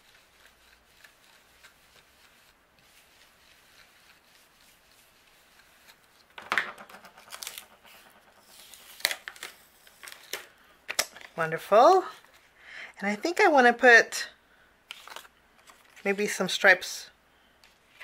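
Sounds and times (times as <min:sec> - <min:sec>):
brush rubbing on card: 0:00.0 - 0:06.2, 0:07.0 - 0:09.1
paper rustling and scraping: 0:00.0 - 0:10.5, 0:14.9 - 0:16.2.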